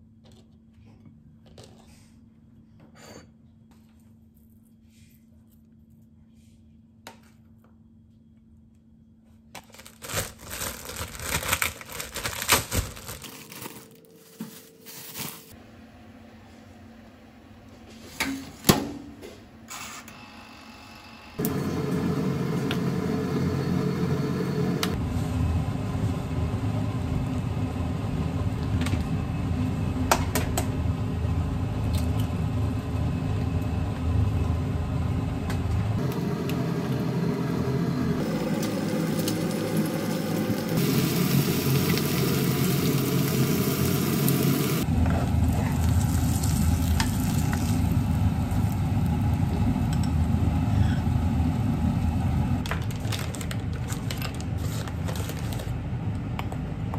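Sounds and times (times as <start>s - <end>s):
food sizzling in a pan: 38.2s - 44.8s.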